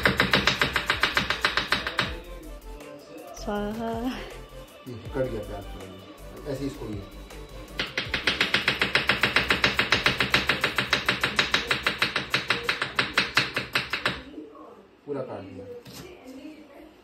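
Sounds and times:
knife chopping on wooden board: 0:00.0 - 0:02.2, 0:07.8 - 0:14.2.

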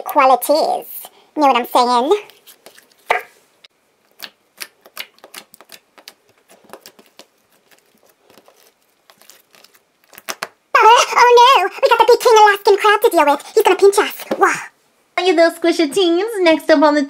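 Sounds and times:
slime squeezed with sticky pops: 0:04.1 - 0:10.6.

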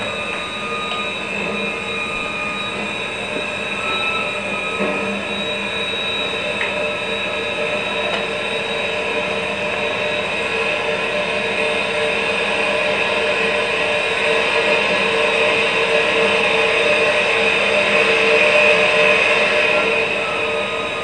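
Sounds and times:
train rumbling on rails: 0:00.0 - 0:08.4
high whining tones: 0:00.0 - 0:21.0.

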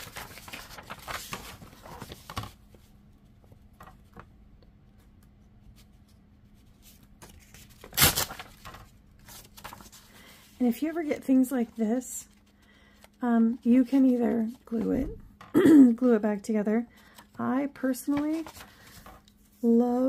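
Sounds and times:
paper ripping: 0:00.0 - 0:02.5, 0:07.2 - 0:10.2
paper rustling: 0:00.0 - 0:04.3, 0:05.0 - 0:15.1, 0:17.0 - 0:20.0.

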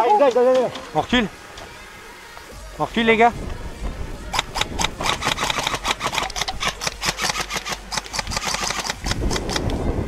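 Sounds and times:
airsoft rifle firing full auto: 0:04.6 - 0:09.2.

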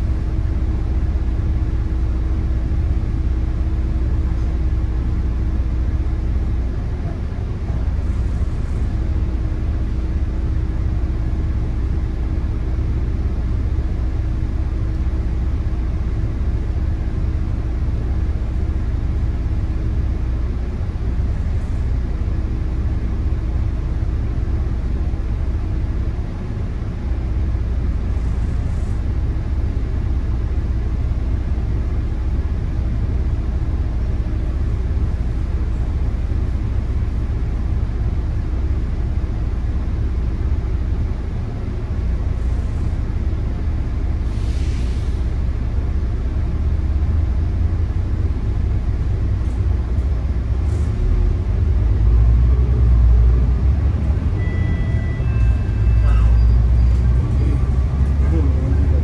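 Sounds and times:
bus diesel engine idling: 0:00.0 - 0:59.0
brief hiss: 0:44.3 - 0:45.2.

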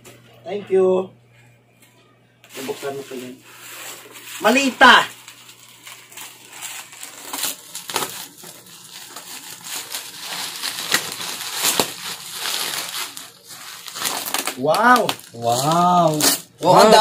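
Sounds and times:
bubble wrap crinkling: 0:02.5 - 0:17.0
bubble wrap snaps: 0:05.0 - 0:16.5.

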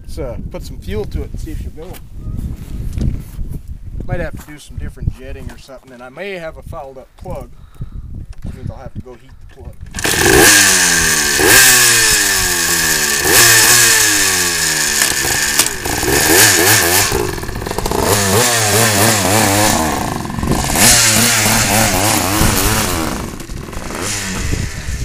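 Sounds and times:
dirt bike engine revving: 0:09.9 - 0:25.0.

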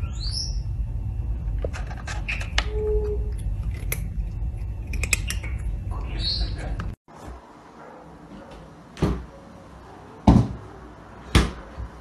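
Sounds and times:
steady low rumble: 0:00.0 - 0:07.0.

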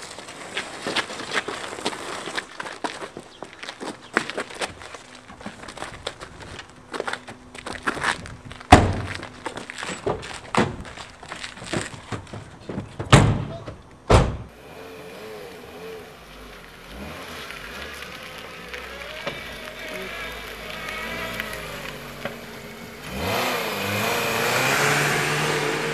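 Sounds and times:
car doors slamming: 0:13.0 - 0:14.5
car engine pulling away: 0:14.5 - 0:25.9.

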